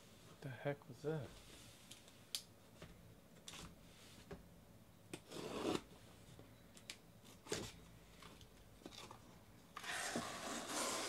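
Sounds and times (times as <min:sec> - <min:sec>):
knife slicing packing tape: 0:09.8 - 0:11.0.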